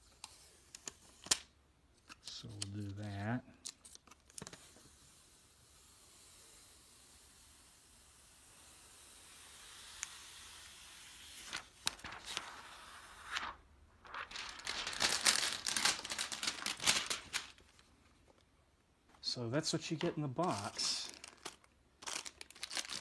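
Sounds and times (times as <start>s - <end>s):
plastic film peeling hiss: 2.4s - 17.9s
plastic crackling and crinkling: 11.4s - 12.7s, 13.3s - 18.5s, 20.4s - 23.0s.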